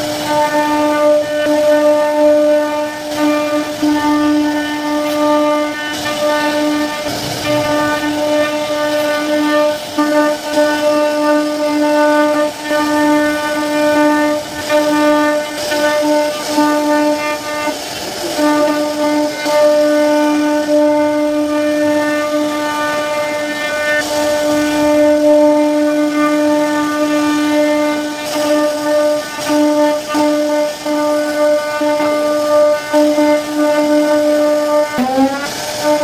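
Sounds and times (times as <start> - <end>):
wood router spindle whine: 4.3 - 10.0.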